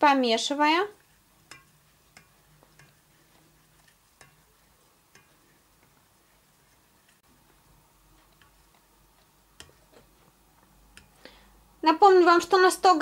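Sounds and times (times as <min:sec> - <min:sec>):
spoon ticking on steel bowl: 0:01.0 - 0:07.2, 0:08.2 - 0:11.2.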